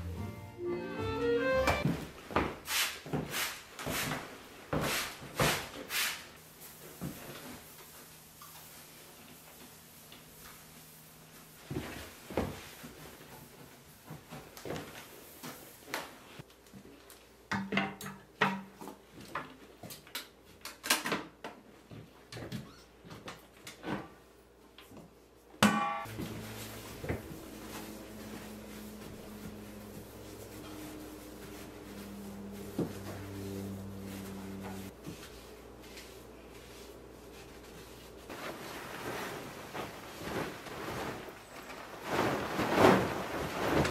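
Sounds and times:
surfaces being wiped: 2.6s - 11.5s, 26.1s - 41.4s
low hum: 26.0s - 35.0s.

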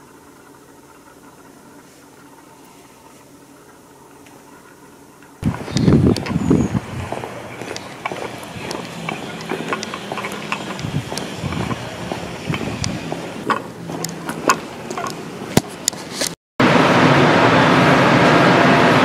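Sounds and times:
traffic hum: 4.9s - 19.0s
footsteps on street: 5.4s - 16.4s.

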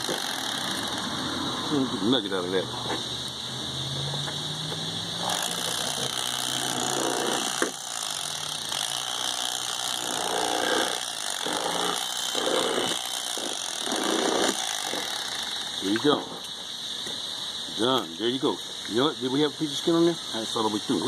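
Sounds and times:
electric knife buzzing: 0.0s - 2.2s, 3.2s - 16.0s.

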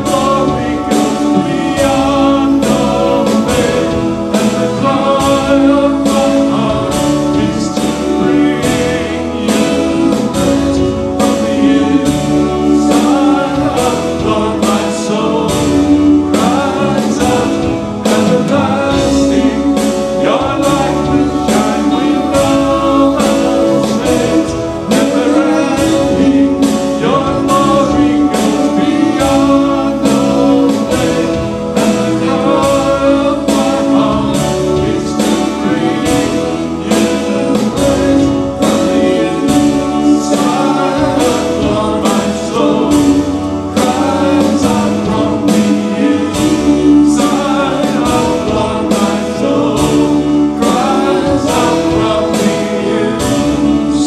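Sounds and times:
worship song with instruments: 0.0s - 54.0s.

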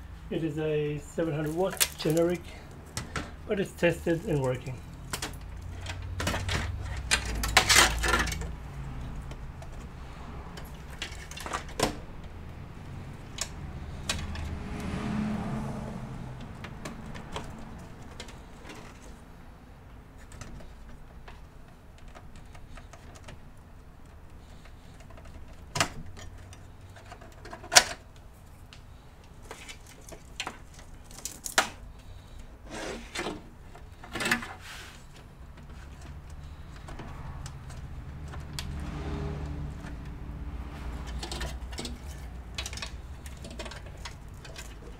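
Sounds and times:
plastic connectors clicking and rattling: 1.4s - 3.3s, 4.1s - 9.9s, 29.2s - 32.2s, 40.9s - 44.9s.

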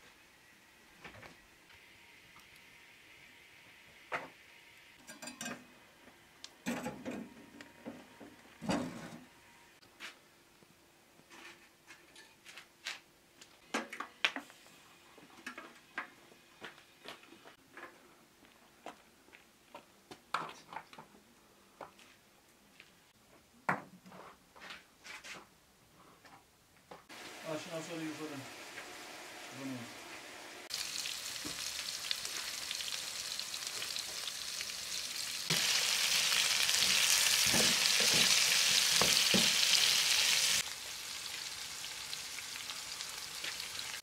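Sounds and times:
frying pan knocking on stove: 36.8s - 39.7s.

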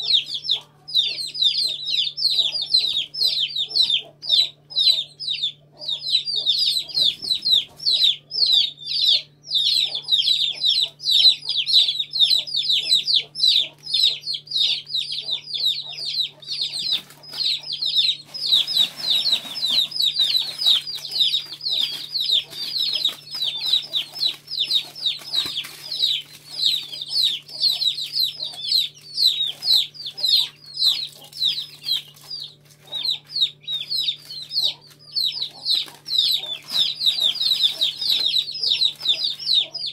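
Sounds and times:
chicks peeping: 0.0s - 39.9s
plastic wrapper rustling: 16.3s - 39.9s.

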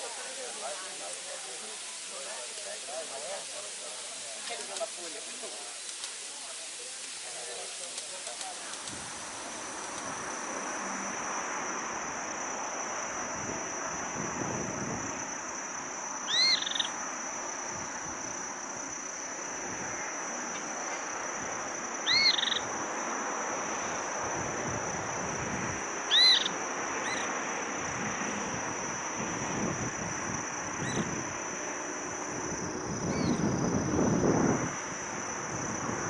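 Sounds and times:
outdoor hiss: 0.0s - 36.0s
whistled animal calls: 16.3s - 16.9s, 22.0s - 22.6s, 26.1s - 27.3s.

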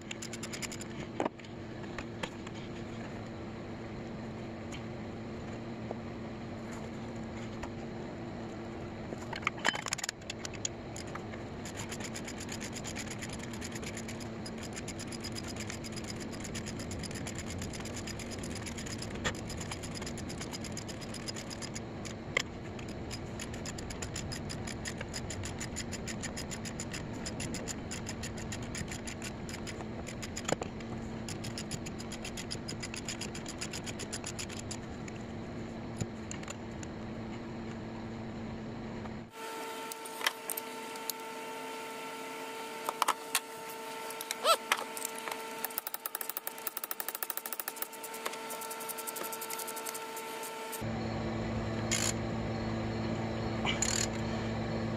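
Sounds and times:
sharp clicks: 45.0s - 50.8s
vehicle engine hum: 47.3s - 54.9s.

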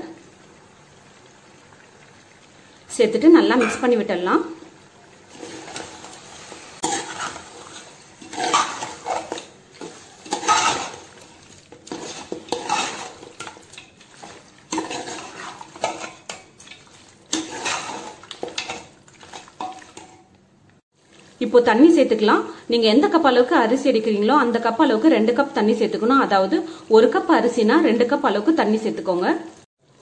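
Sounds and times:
metal spoon scraping a pot: 5.3s - 20.2s.

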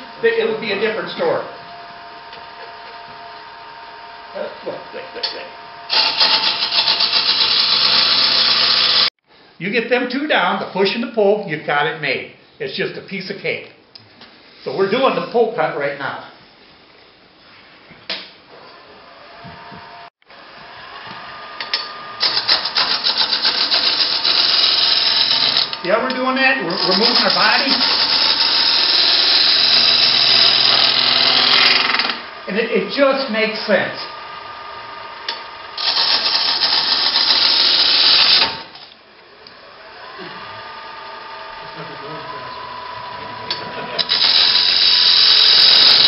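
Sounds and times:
wood lathe running: 0.0s - 9.1s, 19.1s - 46.0s
gouge cutting spinning wood: 5.9s - 9.1s, 20.5s - 38.8s, 39.8s - 46.0s
gouge cutting wood: 22.2s - 25.7s, 26.8s - 32.2s, 35.8s - 38.7s, 44.0s - 46.0s.

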